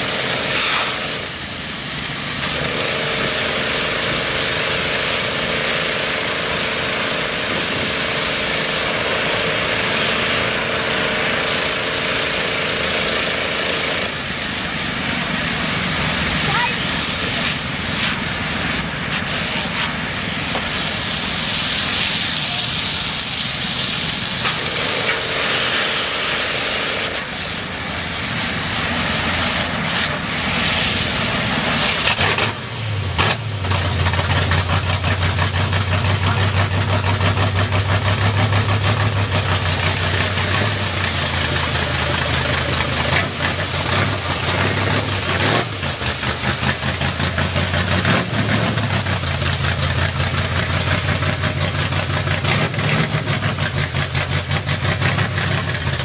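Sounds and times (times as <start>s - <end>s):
pressure washer spray hissing: 0.0s - 33.6s
truck engine running: 0.0s - 56.0s
truck rolling through wet mud: 0.0s - 56.0s.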